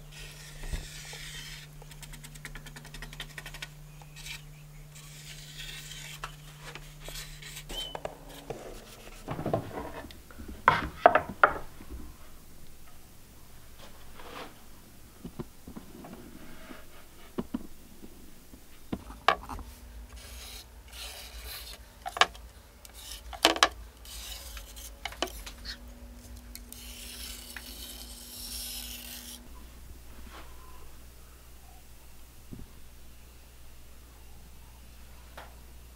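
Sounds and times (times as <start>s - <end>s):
marker scratching on wood: 0.2s - 9.3s.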